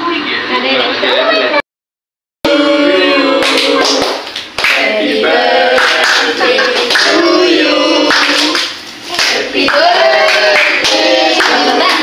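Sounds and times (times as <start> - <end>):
group singing birthday song: 2.4 - 12.0
hand claps: 8.1 - 12.0.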